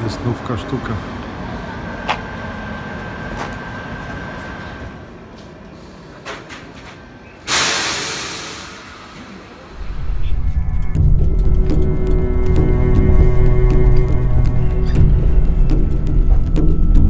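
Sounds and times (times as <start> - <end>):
train low rumble: 0.0 - 17.0
air brakes hissing: 5.4 - 6.6, 7.2 - 9.6.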